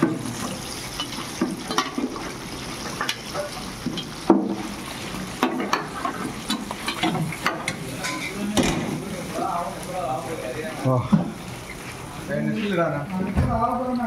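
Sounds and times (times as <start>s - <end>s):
oil sizzling in a deep fryer: 0.0s - 14.0s.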